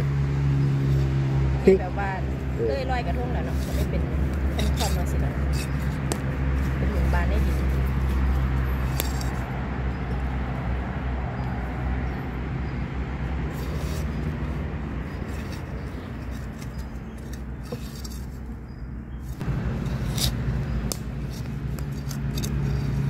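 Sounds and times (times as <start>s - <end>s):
leaves and twigs crackling: 2.3s - 10.6s, 19.2s - 23.0s
hands digging in sandy soil: 2.8s - 9.6s.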